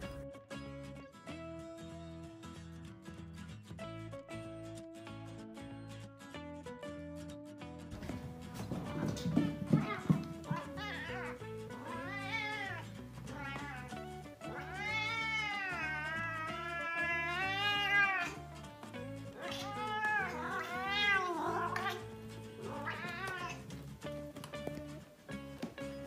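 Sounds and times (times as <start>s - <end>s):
background music: 0.0s - 26.0s
cat meowing: 9.0s - 18.6s, 19.2s - 23.8s.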